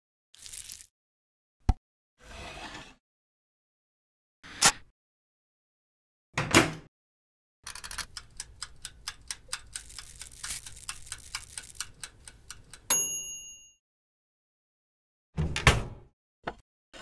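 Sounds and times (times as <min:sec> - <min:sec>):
timer ticking: 0:08.0 - 0:12.9
bell ding: 0:12.9 - 0:13.8.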